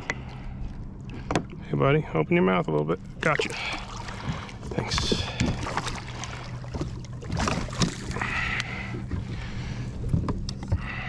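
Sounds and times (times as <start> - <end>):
steady low hum: 0.0 - 11.0
water splash: 3.2 - 8.4.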